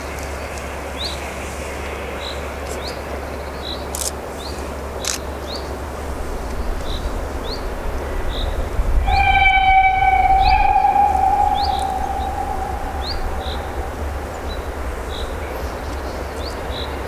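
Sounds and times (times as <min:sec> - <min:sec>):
steam locomotive rumble: 0:06.1 - 0:17.0
steam train whistle: 0:09.0 - 0:14.8
small bird chirping: 0:09.1 - 0:15.3.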